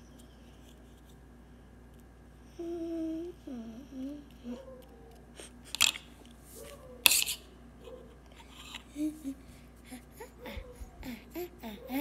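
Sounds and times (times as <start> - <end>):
girl humming: 2.5 - 4.8, 8.9 - 12.0.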